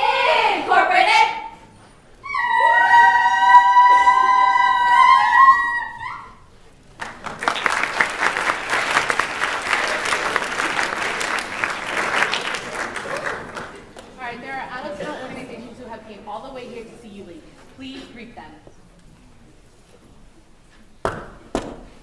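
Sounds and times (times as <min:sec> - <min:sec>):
audience applause: 0:07.0 - 0:14.2.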